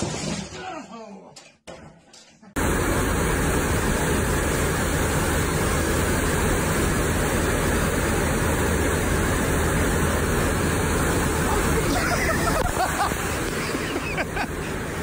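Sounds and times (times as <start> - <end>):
rushing water hiss: 2.6 - 15.0.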